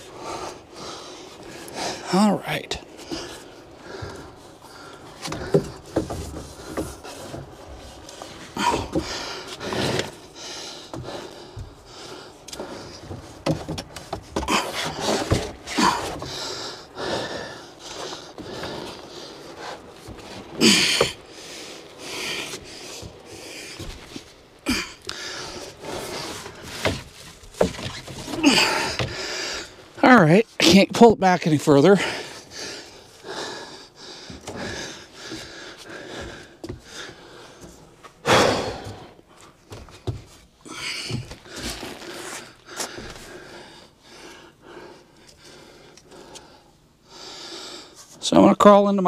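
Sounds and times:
person breathing hard: 0.0 - 2.3, 2.9 - 30.0, 31.9 - 48.1
plastic conduit knocking and scraping: 5.2 - 10.2, 12.6 - 16.5, 25.6 - 29.7.

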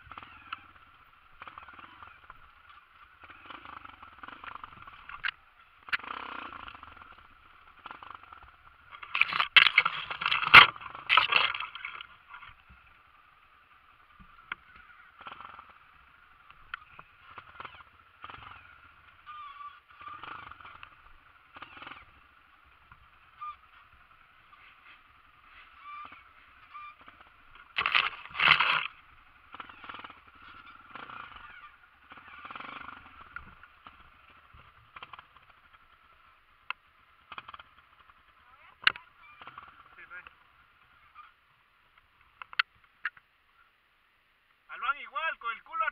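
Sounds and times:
dirt bike engine at low revs: 0.0 - 44.7
knocks of bike over rocks: 7.8 - 12.9, 25.6 - 35.8.

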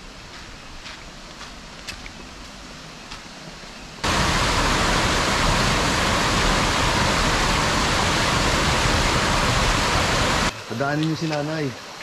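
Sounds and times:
water rushing over weir: 4.0 - 12.0.

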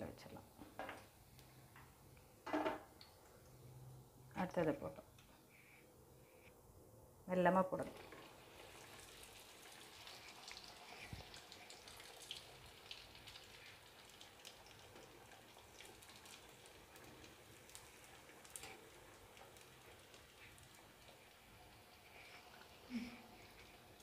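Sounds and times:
food sizzling in hot oil: 8.0 - 24.0.

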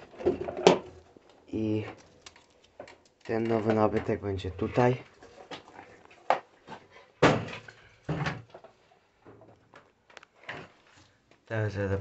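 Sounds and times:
wooden door knocking and banging: 7.2 - 8.5.

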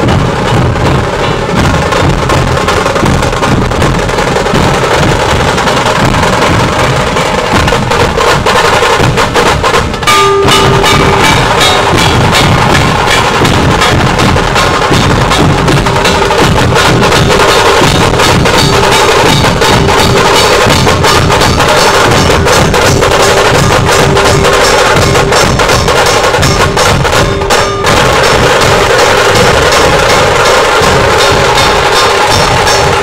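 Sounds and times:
loud fast barrel drumming: 0.0 - 33.0
steady ringing tone: 10.0 - 33.0.

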